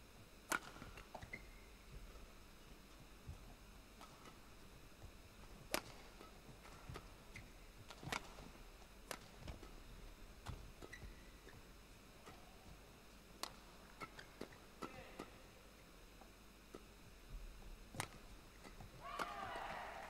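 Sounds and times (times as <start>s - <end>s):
rackets hitting shuttlecock: 0.5s - 1.0s, 9.0s - 9.8s, 13.4s - 15.4s, 17.9s - 20.0s
shoe squeaks on court floor: 1.2s - 1.6s, 10.8s - 11.6s.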